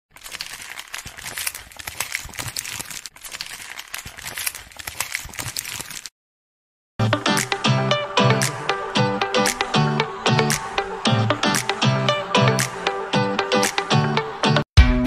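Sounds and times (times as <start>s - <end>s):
paper crumpling: 0.1s - 6.1s.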